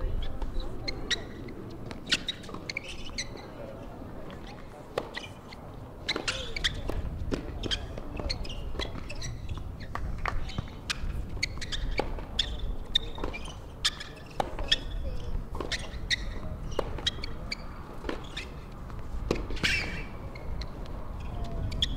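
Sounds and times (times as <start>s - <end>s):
tennis ball bouncing: 4.4s - 5.2s, 6.0s - 20.9s
racquet hitting tennis ball: 15.5s - 17.4s, 19.2s - 20.2s.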